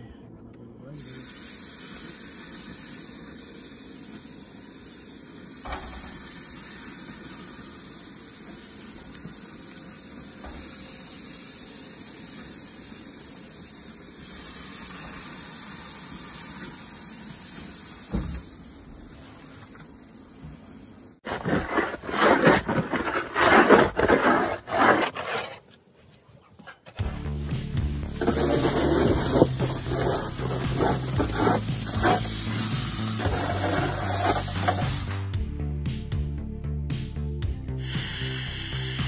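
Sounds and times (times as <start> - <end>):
steaks sizzling on grill: 1.0 - 18.5, 27.4 - 35.1.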